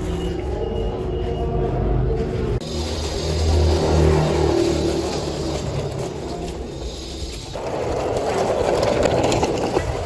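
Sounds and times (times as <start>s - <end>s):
toy wheels rolling over concrete: 2.7s - 10.0s.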